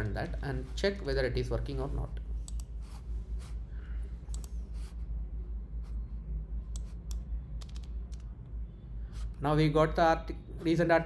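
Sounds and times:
steady low hum: 0.0s - 11.0s
mouse clicks: 4.3s - 4.6s
computer keyboard clicks: 6.8s - 8.3s.

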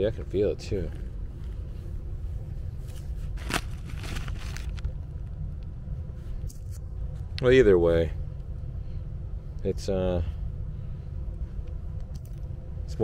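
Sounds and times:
insulation rustling and crackling: 0.0s - 8.6s
steady low rumble: 0.0s - 13.0s.

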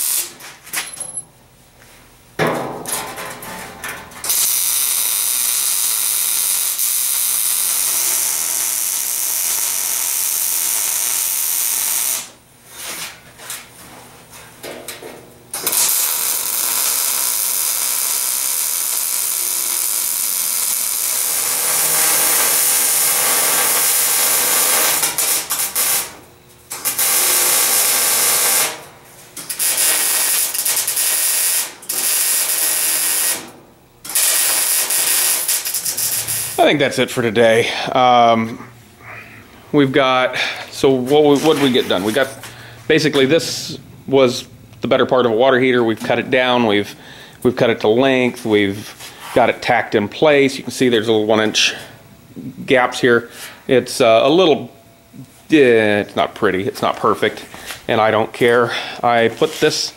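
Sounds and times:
welder arc hissing: 0.0s - 0.4s, 4.3s - 12.4s, 15.6s - 28.8s, 29.4s - 37.0s.

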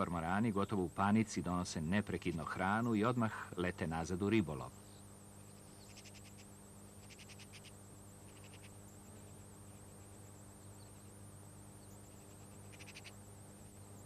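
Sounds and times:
low hum and hiss: 0.0s - 14.0s
chicks squeaky clicking calls: 5.8s - 8.8s, 12.0s - 13.2s.

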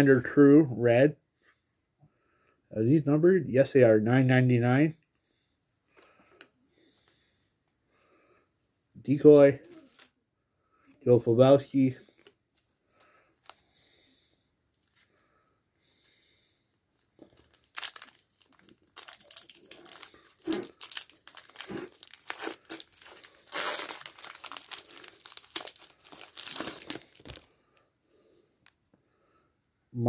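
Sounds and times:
foil wrapper crinkling: 17.0s - 27.6s.

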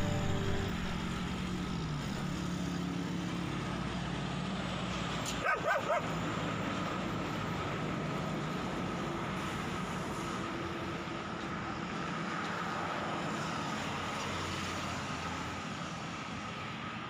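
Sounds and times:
road traffic noise: 0.0s - 17.0s
dog barking: 5.3s - 6.2s.

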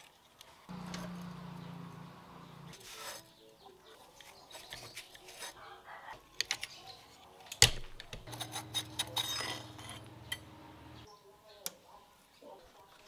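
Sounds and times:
steady low hum: 8.3s - 11.1s.

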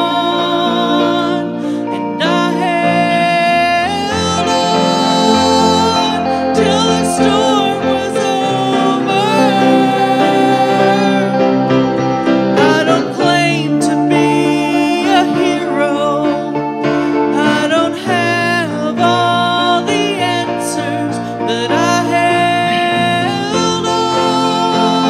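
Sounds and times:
electric guitar: 0.0s - 25.0s
woman singing into a microphone: 0.0s - 25.0s.

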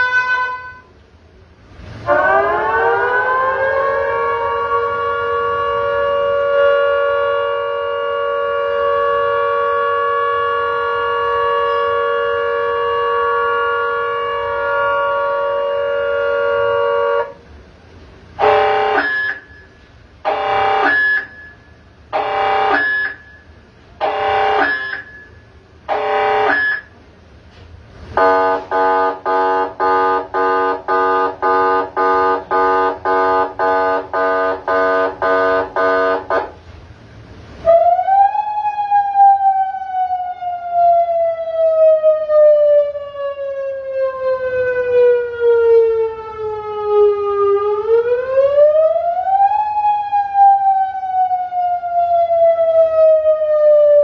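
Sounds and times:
electronic siren blasts and wails: 2.1s - 17.3s, 18.4s - 19.7s, 20.3s - 27.0s, 28.2s - 36.6s.

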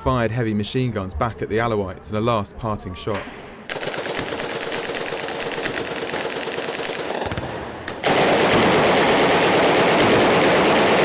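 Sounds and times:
machine gun automatic bursts: 3.7s - 7.4s, 8.0s - 11.0s.

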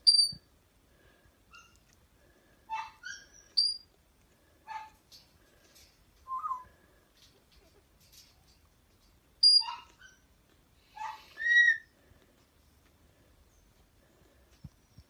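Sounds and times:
puppies squeaking and whimpering: 2.7s - 3.8s.

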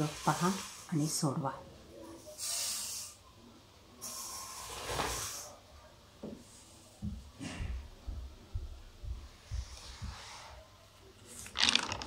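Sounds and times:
soft hissing rustles: 0.0s - 5.7s.

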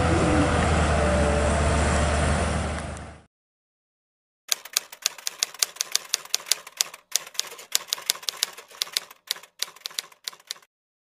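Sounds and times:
typewriter key strikes: 4.5s - 10.7s.

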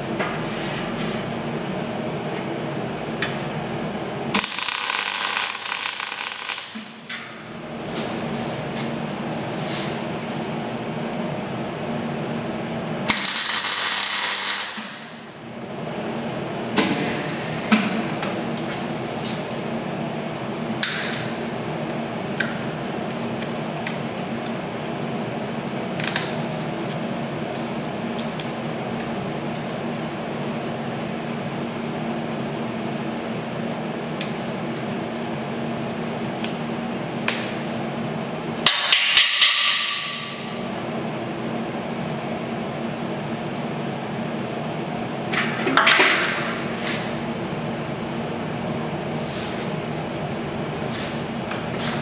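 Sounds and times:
steady background hum: 0.0s - 52.0s
welding arc hissing and crackling: 4.3s - 7.1s, 13.0s - 15.1s, 16.8s - 17.8s.

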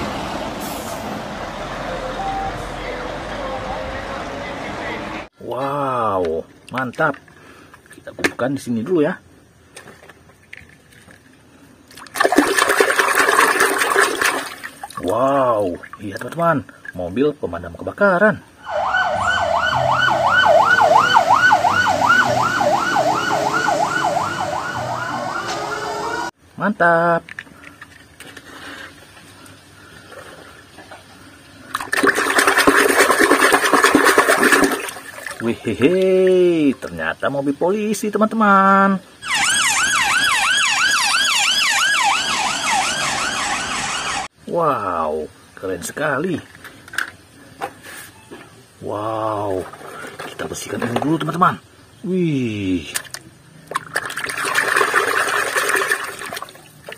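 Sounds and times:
fire truck siren yelping: 18.6s - 26.4s, 39.2s - 44.3s.

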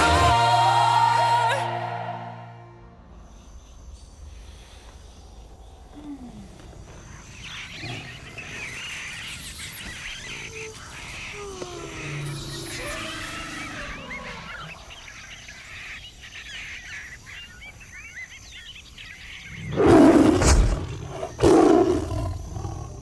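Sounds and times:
birds chirping: 3.1s - 23.0s
large animal roaring: 11.3s - 14.9s, 19.6s - 23.0s.

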